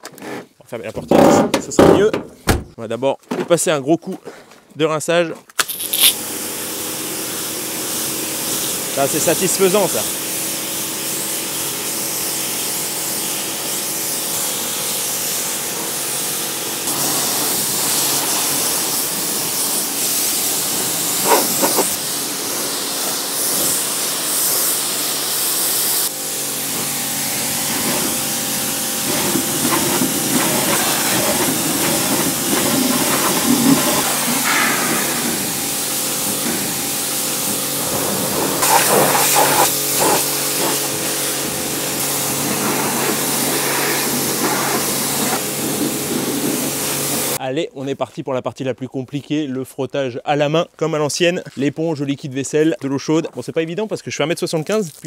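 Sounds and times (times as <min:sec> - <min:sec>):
pressure washer jet hissing: 0:05.6 - 0:47.4
motor-pump hum: 0:26.1 - 0:47.4.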